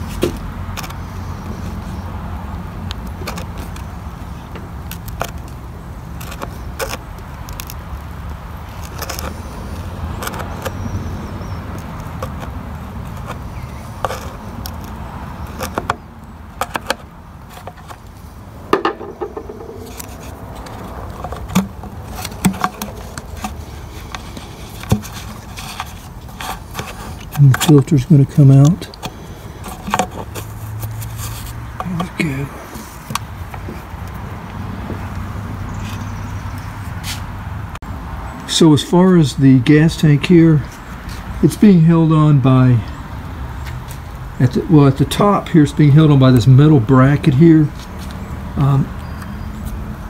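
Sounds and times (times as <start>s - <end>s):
screwdriver scraping and clicking: 8.7s - 10.8s, 11.7s - 16.0s, 16.6s - 18.1s, 19.0s - 27.9s, 28.9s - 32.0s.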